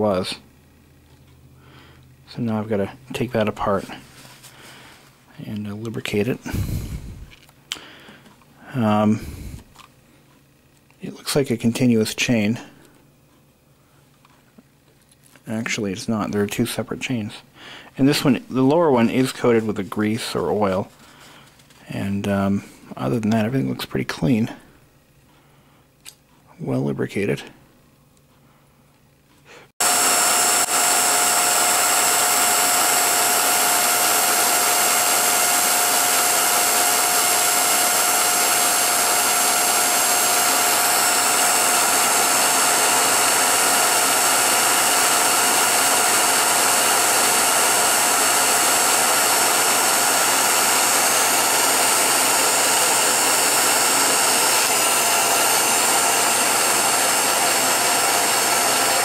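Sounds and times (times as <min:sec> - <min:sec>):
film projector running: 0:29.8 - 0:59.0.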